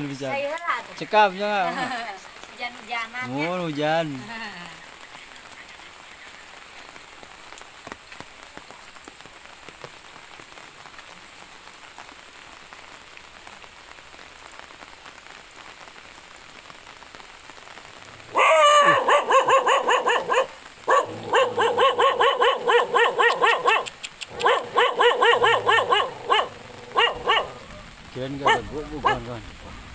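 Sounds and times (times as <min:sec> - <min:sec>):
light rain pattering on leaves: 0:00.0 - 0:29.9
dog barking in high yaps: 0:18.3 - 0:29.3.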